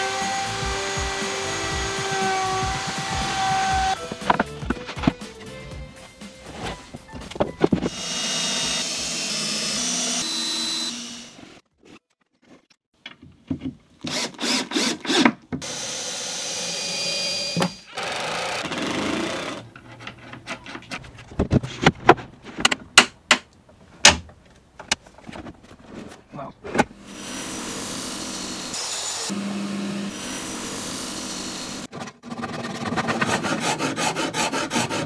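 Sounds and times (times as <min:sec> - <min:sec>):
power tool running: 0:00.0 - 0:04.5, 0:07.9 - 0:11.5, 0:14.1 - 0:19.6, 0:27.0 - 0:31.9.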